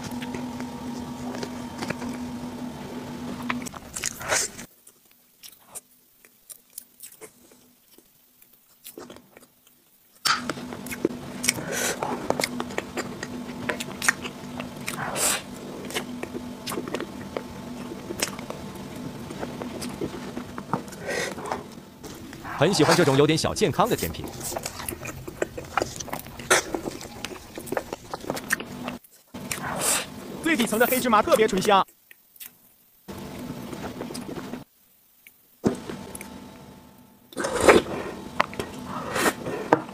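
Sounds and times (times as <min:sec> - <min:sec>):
low steady hum: 0:00.0 - 0:04.7, 0:10.3 - 0:31.7.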